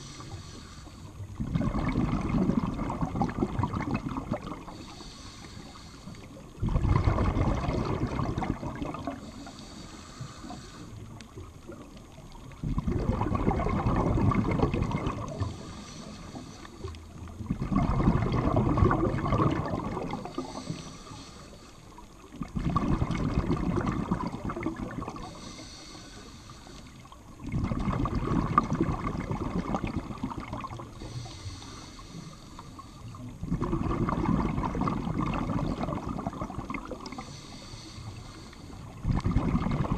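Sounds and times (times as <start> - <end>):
regulator inhale hiss: 0.0 - 1.4, 4.6 - 6.6, 9.0 - 11.5, 15.3 - 17.4, 20.2 - 22.2, 25.1 - 27.2, 30.8 - 33.4, 37.0 - 39.0
exhaled bubbles burbling: 1.3 - 4.8, 6.4 - 9.3, 11.3 - 15.7, 17.2 - 20.7, 22.2 - 25.4, 27.3 - 31.1, 33.4 - 37.3, 38.9 - 39.9.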